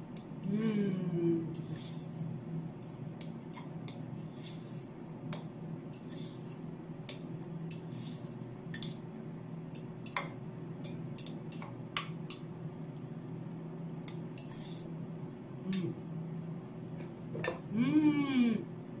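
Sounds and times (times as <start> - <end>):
steady low hum: 0.0 - 19.0
spoon clinking and scraping metal bowl: 14.4 - 14.9.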